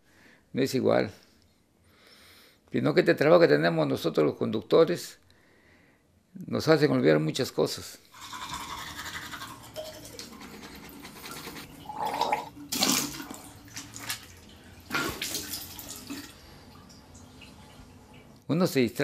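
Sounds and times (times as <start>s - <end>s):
toothbrush scrubbing teeth: 8.1s - 12.9s.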